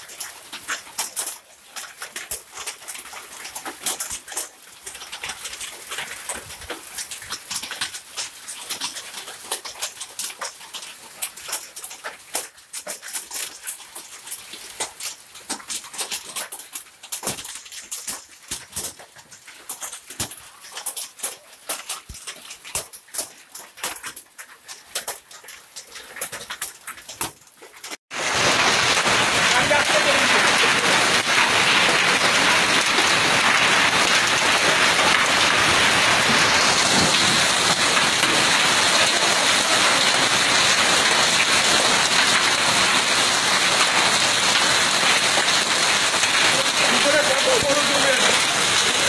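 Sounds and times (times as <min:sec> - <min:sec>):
hailstones clattering on road: 0:00.0 - 0:49.0.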